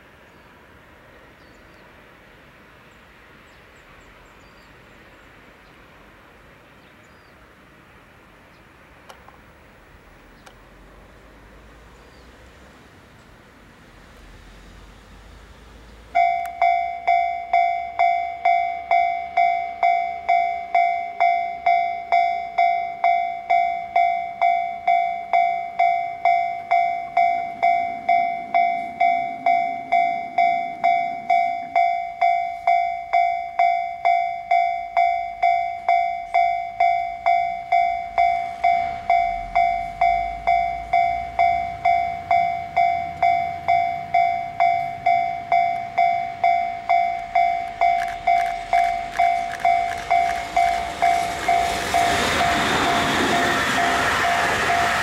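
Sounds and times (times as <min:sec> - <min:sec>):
level crossing warning bell: 0:16.1 - 0:55.0.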